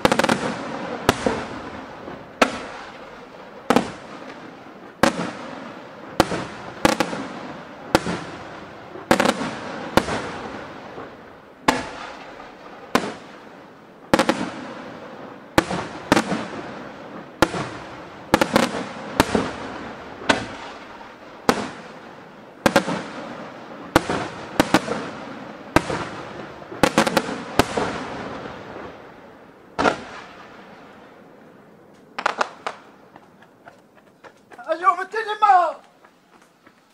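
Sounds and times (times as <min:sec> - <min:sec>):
fading hiss after firework bursts: 0:00.0 - 0:36.9
firework shells bursting: 0:31.9 - 0:33.9.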